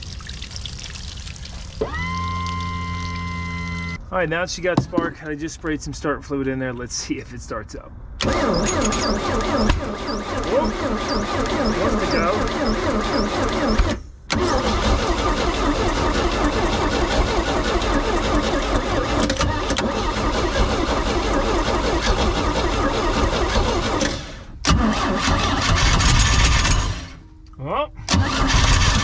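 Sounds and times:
engine firing and sputtering: 8.2s - 27.2s, 28.1s - 29.0s
engine starter cranking: 8.2s - 27.2s, 28.1s - 29.0s.

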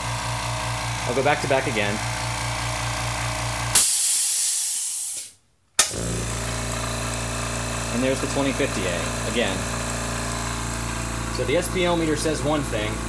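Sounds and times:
air compressor humming: 0.0s - 13.0s
loud hiss of air venting: 3.7s - 5.4s.

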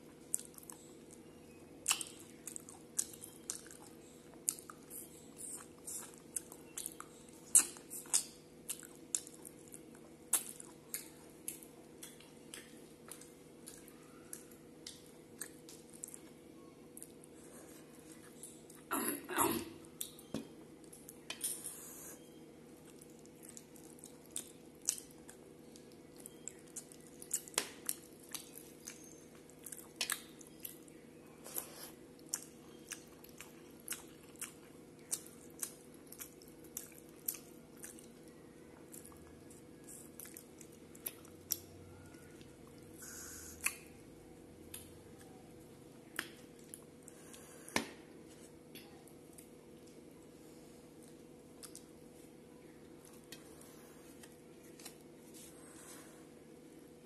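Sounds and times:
faint steady hum: 0.0s - 57.0s
person chewing with mouth clicks: 0.2s - 16.3s, 22.8s - 44.0s, 51.0s - 52.0s.

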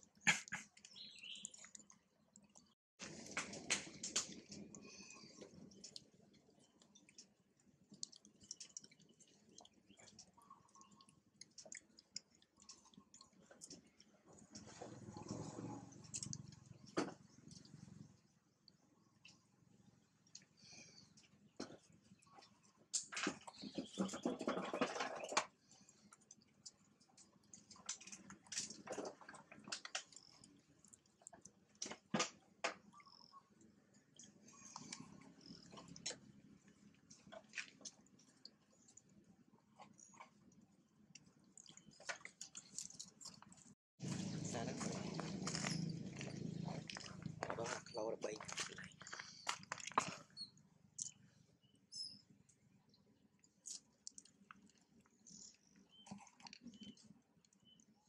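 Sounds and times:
faint clicks and ticks: 0.2s - 19.5s, 20.2s - 23.6s, 53.4s - 58.0s.

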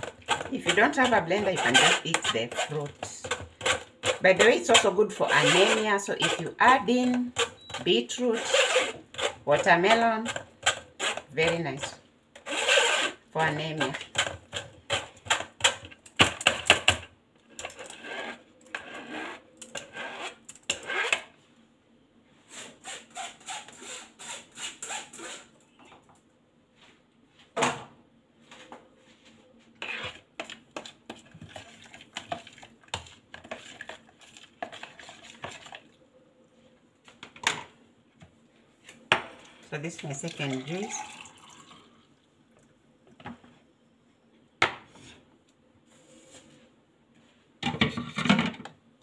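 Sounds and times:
spoon scraping metal sieve: 0.3s - 10.4s.

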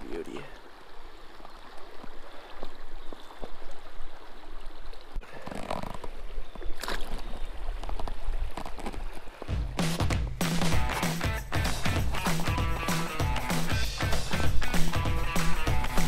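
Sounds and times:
creek water rushing: 0.0s - 9.6s.

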